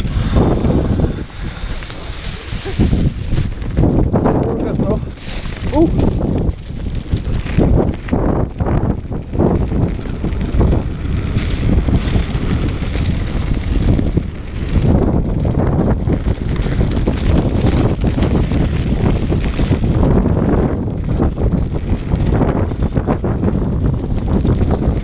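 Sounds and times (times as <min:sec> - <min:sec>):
bike rattling over bumps: 0:00.0 - 0:25.0
wind rushing over microphone: 0:00.0 - 0:25.0.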